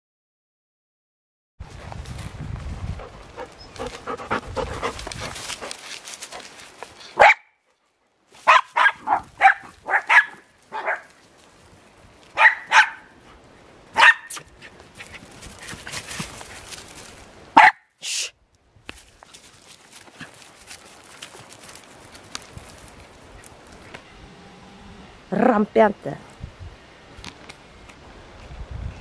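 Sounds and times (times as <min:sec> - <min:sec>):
small dog barking: 0:07.2 - 0:07.6, 0:08.4 - 0:11.1, 0:12.4 - 0:13.1, 0:13.9 - 0:14.4, 0:17.6 - 0:17.9.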